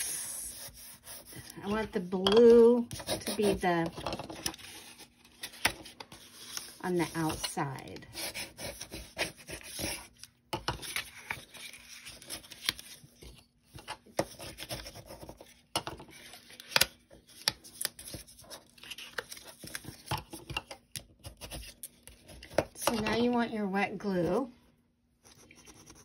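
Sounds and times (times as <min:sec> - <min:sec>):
paper rustling and rubbing: 0:00.4 - 0:01.5.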